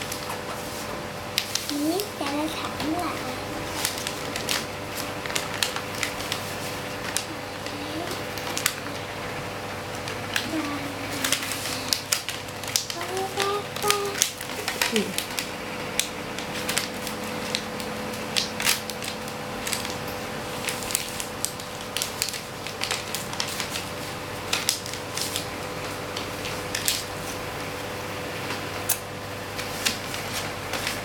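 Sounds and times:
paper being folded: 0:00.0 - 0:31.0.

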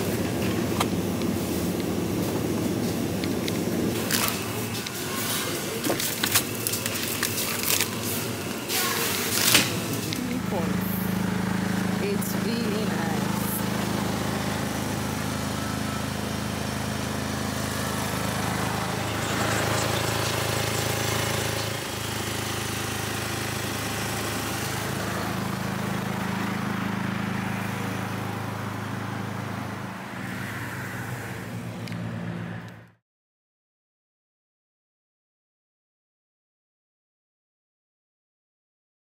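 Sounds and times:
vehicle engine idling: 0:00.0 - 0:32.2
road ambience: 0:00.0 - 0:33.0.

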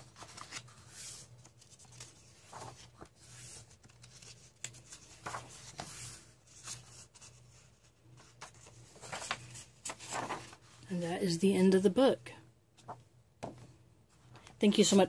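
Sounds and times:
paper pages turning: 0:00.0 - 0:10.9.

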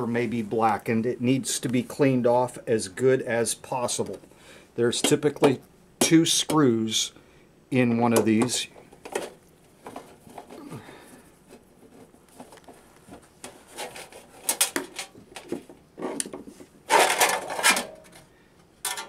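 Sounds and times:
sheet metal scraping and rattling: 0:16.9 - 0:19.0.

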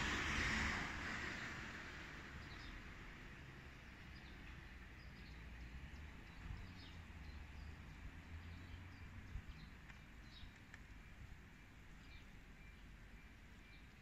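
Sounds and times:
small birds chirping: 0:04.1 - 0:11.3, 0:11.9 - 0:14.0.

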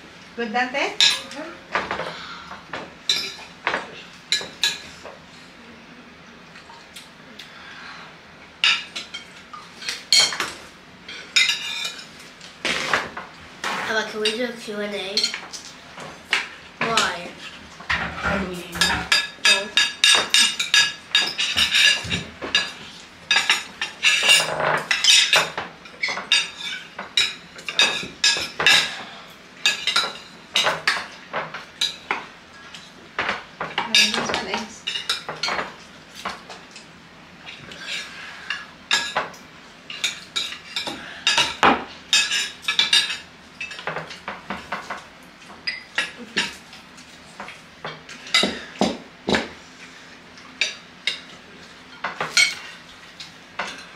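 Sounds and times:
forks and spoons clinking on plates: 0:01.0 - 0:02.1, 0:08.6 - 0:12.1, 0:17.8 - 0:36.9, 0:37.5 - 0:46.6, 0:51.9 - 0:52.8.

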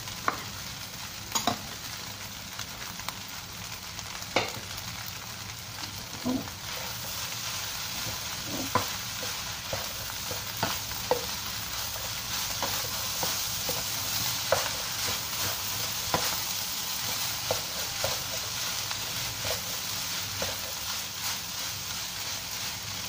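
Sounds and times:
food sizzling in a wok: 0:00.0 - 0:23.0
spatula stirring food: 0:06.1 - 0:23.0
spatula knocking pan: 0:08.0 - 0:11.4, 0:12.4 - 0:20.9.

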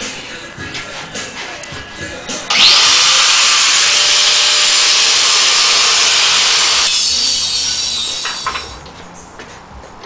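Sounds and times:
angle grinder grinding steel: 0:02.5 - 0:08.8.

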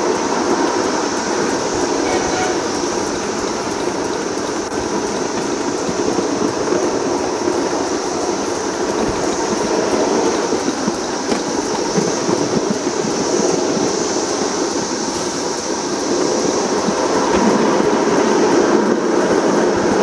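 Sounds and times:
wheels rumbling and rattling on rail: 0:00.0 - 0:20.0.

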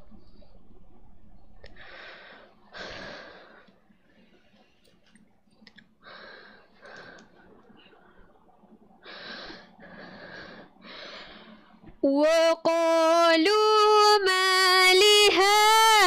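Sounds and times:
close breaths: 0:01.7 - 0:05.2, 0:06.0 - 0:12.0
faint mouth clicks: 0:04.8 - 0:05.9, 0:06.8 - 0:07.8.

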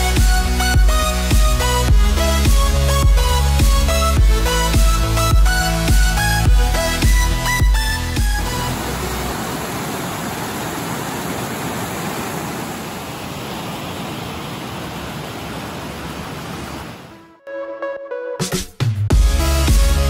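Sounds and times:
stream cascading over rocks: 0:08.5 - 0:17.2.

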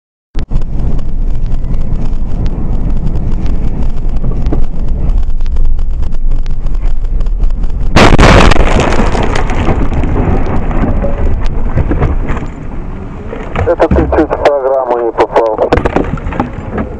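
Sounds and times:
car road and engine rumble: 0:00.4 - 0:16.9
rush of noise: 0:00.4 - 0:16.9
loud car crash: 0:07.9 - 0:12.6.

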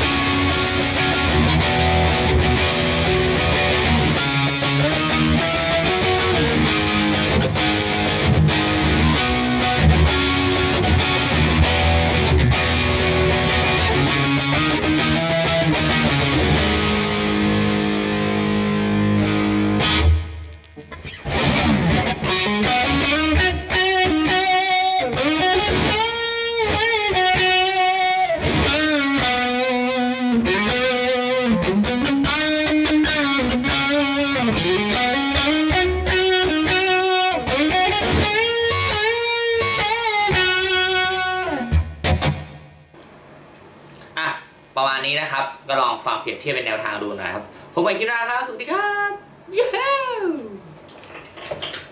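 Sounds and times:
distorted electric guitar chord: 0:00.0 - 0:32.3
electric guitar lead with bends: 0:00.0 - 0:42.8.

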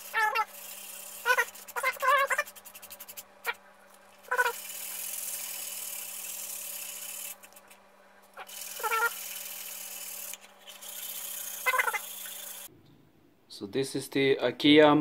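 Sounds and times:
hand-sanding wood: 0:00.0 - 0:03.2.

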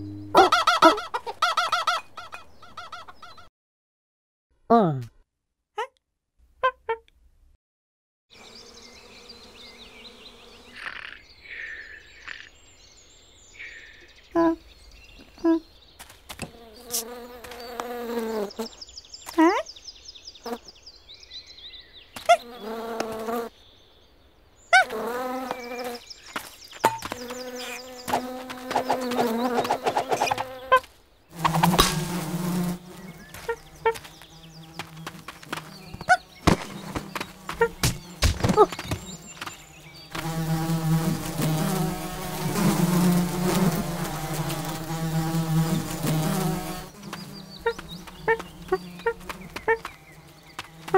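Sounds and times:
steady buzz: 0:00.0 - 0:00.4, 0:31.4 - 0:50.9.

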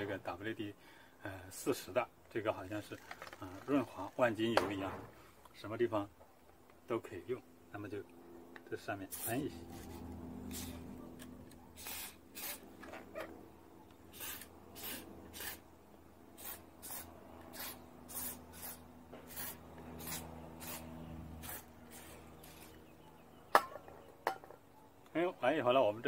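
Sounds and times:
faint low hum: 0:00.0 - 0:16.4
aerosol spray hissing bursts: 0:10.5 - 0:10.8, 0:11.8 - 0:12.6, 0:14.1 - 0:15.6, 0:16.4 - 0:20.8.

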